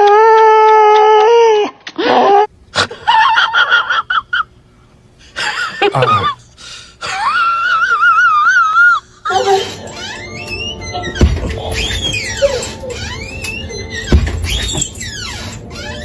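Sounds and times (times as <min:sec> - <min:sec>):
husky howling: 0:09.3 - 0:15.0.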